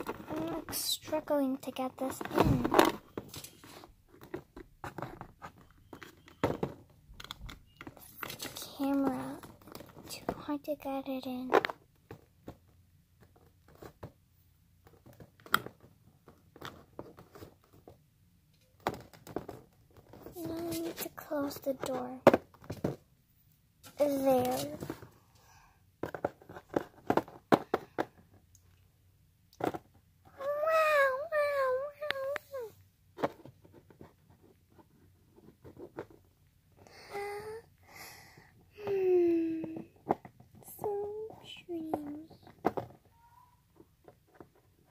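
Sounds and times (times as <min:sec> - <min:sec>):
breathy sound: 0:25.3 - 0:25.8, 0:36.8 - 0:39.1.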